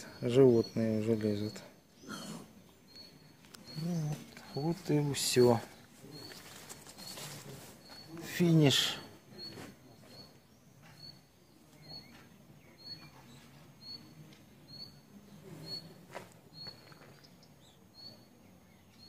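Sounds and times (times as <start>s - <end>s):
bird chirping faintly: 0.0s - 19.0s.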